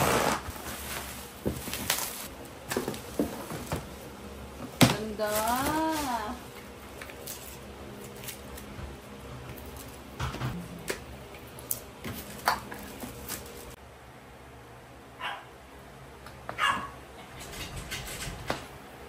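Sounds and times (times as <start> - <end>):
small dogs barking: 15.2 - 15.5, 16.6 - 17.0.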